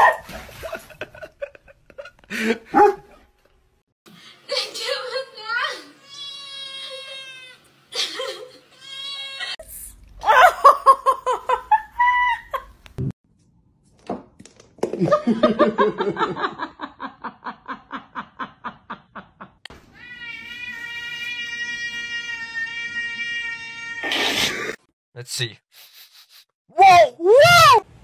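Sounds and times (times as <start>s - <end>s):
person laughing hard: 10.2s - 12.7s
cat long high meow: 20.0s - 24.1s.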